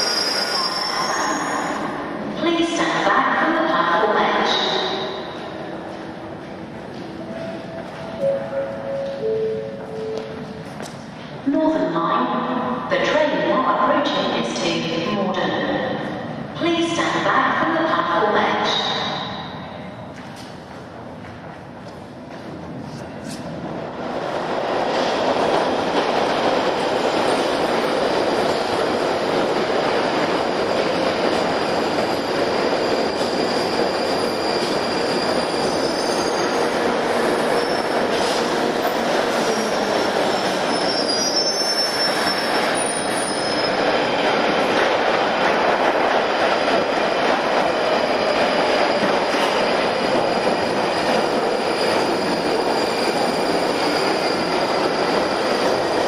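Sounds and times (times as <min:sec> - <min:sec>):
high wheel squeal: 0:00.0 - 0:01.8, 0:33.1 - 0:36.6, 0:37.5 - 0:38.0, 0:39.4 - 0:43.8
train rail noise: 0:00.0 - 0:56.0.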